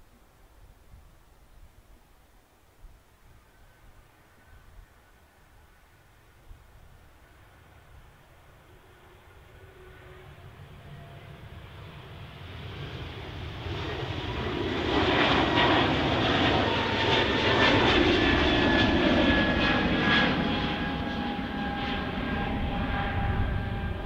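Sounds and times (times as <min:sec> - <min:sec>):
jet engines roaring at take-off: 0:08.5 - 0:24.0
high engine whine: 0:18.1 - 0:24.0.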